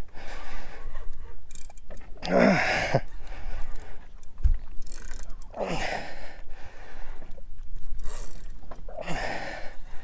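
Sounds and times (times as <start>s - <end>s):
fishing reel clicking and whirring: 1.4s - 2.0s, 4.8s - 5.8s, 7.9s - 8.6s.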